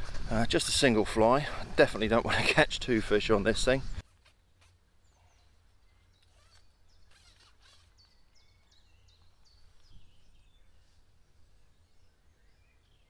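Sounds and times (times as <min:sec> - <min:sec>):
small bird calling: 0:03.8 - 0:13.0.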